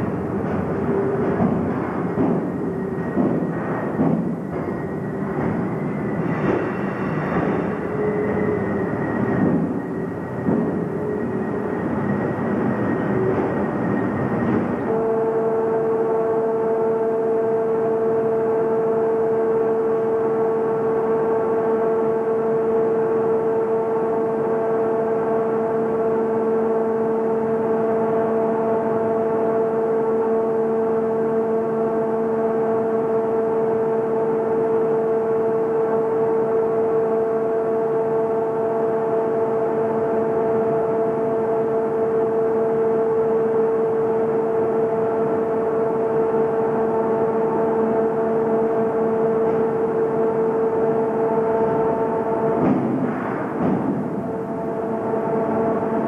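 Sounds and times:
machinery drone: 0.0s - 56.0s
knocks: 0.4s - 5.8s, 9.3s - 9.8s, 10.4s - 11.0s, 52.6s - 54.2s.

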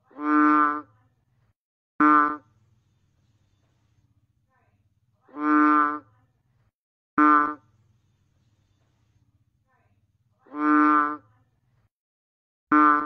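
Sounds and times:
frog calling: 7.2s - 7.6s.

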